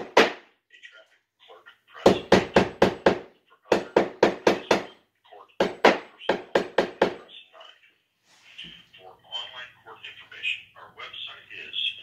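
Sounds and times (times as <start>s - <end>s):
loud sharp knocks: 0.0s - 0.5s, 2.0s - 5.0s, 5.6s - 7.2s.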